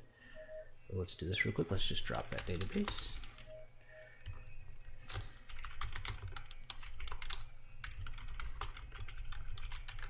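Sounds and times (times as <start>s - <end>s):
typing on computer keyboard: 2.2s - 3.4s, 5.1s - 10.0s.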